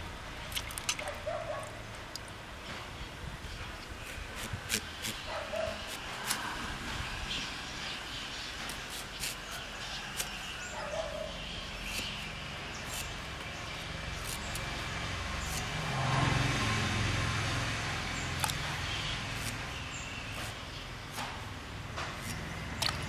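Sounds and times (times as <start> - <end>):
low engine-like hum: 10.6 - 20.6.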